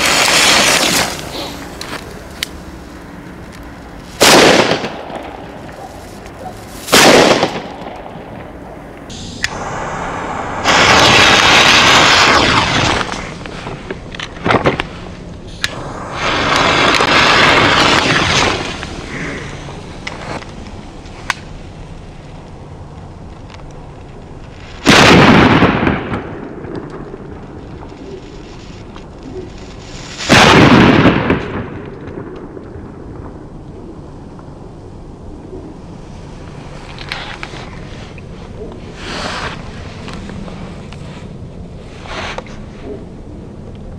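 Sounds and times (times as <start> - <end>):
loud hissing: 0.0 - 3.1, 8.6 - 13.8, 14.9 - 20.4, 38.8 - 40.0
firecrackers banging: 0.0 - 21.5, 24.5 - 33.4.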